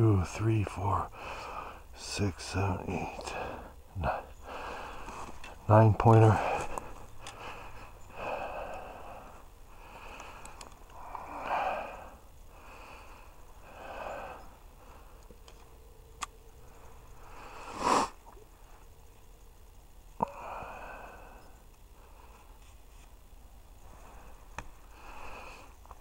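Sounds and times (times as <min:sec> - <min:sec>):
person breathing close: 0:01.1 - 0:01.9, 0:02.9 - 0:05.6, 0:06.3 - 0:15.2, 0:16.8 - 0:18.2, 0:20.2 - 0:22.6, 0:23.8 - 0:26.0
sharp clicks: 0:10.1 - 0:11.0.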